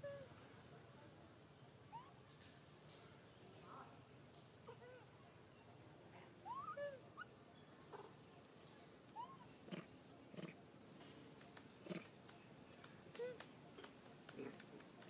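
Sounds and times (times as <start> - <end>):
monkeys cooing: 6.4 - 7.0, 9.2 - 10.7, 11.8 - 12.2.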